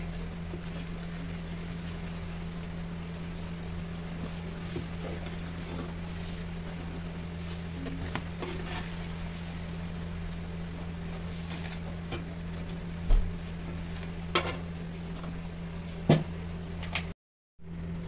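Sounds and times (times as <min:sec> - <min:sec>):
oil sizzling: 0:00.0 - 0:16.0
steady low hum: 0:00.0 - 0:18.0.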